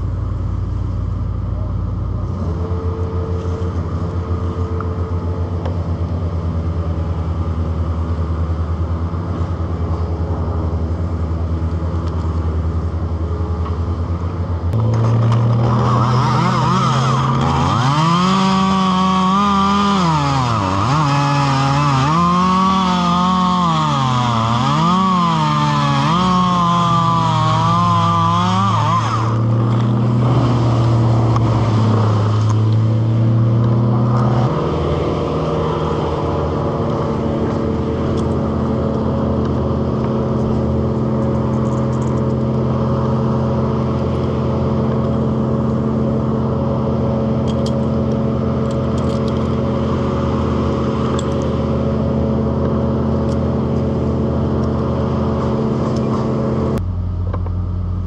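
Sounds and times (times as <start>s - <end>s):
chainsaw cutting wood: 14.8s - 56.8s.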